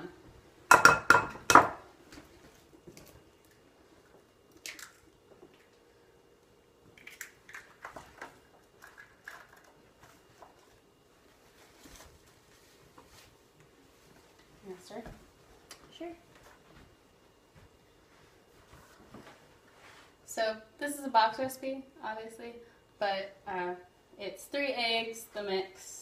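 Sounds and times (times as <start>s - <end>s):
eggs knocked on glass bowl: 0.7s - 1.8s.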